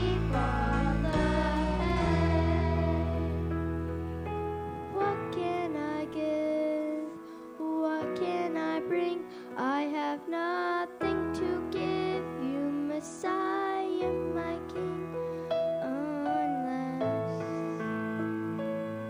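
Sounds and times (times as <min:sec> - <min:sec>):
person singing a melody: 0:00.0 - 0:03.5, 0:04.9 - 0:18.0
sustained low accompaniment notes: 0:00.0 - 0:06.2.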